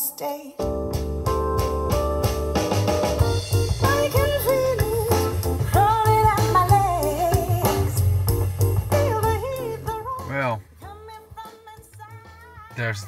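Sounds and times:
pop song with woman singing: 0:00.0 - 0:00.8, 0:03.2 - 0:08.2, 0:08.8 - 0:13.0.

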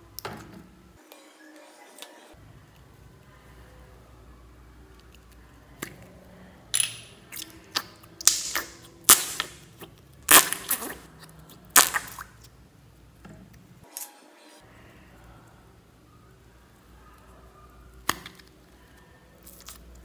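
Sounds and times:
slime clicks and crackling pops: 0:07.4 - 0:09.6, 0:11.7 - 0:12.3.

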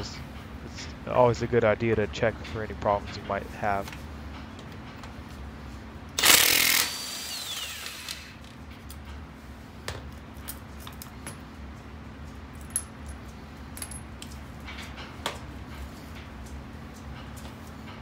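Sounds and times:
steady low hum: 0:00.0 - 0:18.0
impact wrench whining: 0:06.2 - 0:08.5.

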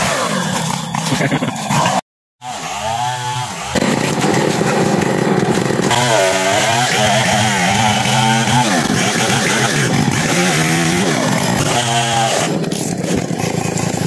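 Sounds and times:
chainsaw cutting wood: 0:00.0 - 0:02.0, 0:02.7 - 0:14.0.

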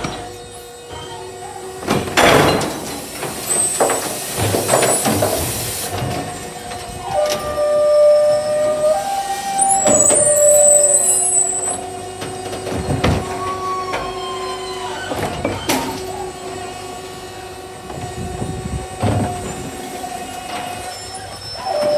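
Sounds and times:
hydraulic drive whining: 0:00.0 - 0:21.9
hydraulic hiss: 0:02.5 - 0:07.0.

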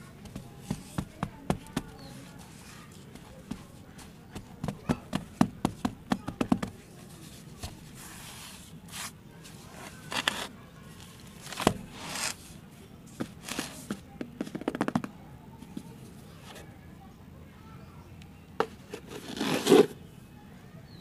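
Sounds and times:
hands patting soil: 0:00.0 - 0:15.0
soil scraping and rustling: 0:07.1 - 0:14.0, 0:18.7 - 0:20.0.

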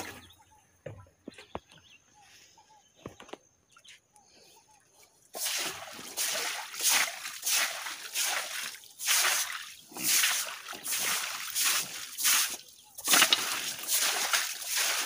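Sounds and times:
water splashing: 0:00.0 - 0:00.4, 0:05.4 - 0:15.0
stiff broom scrubbing wet floor: 0:05.4 - 0:15.0.

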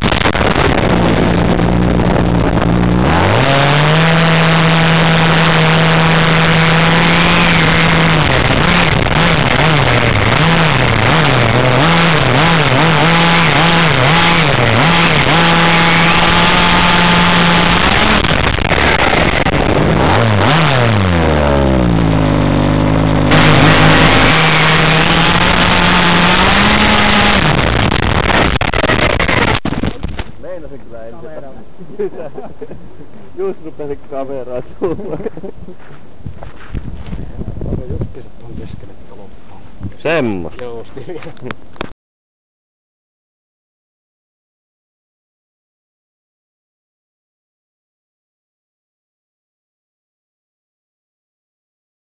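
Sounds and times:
rc car engine revving: 0:00.0 - 0:29.8.

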